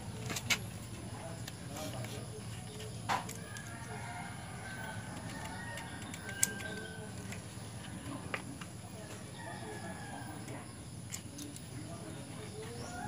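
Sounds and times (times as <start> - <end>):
distant birds calling: 0.0 - 13.0
faint background voices: 0.0 - 13.0
sharp clicks: 5.1 - 7.4.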